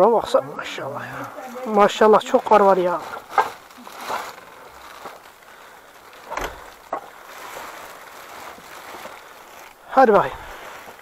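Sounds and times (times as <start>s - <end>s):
faint hiss: 0.4s - 11.0s
knocks and rustles: 3.0s - 5.4s, 6.0s - 9.7s.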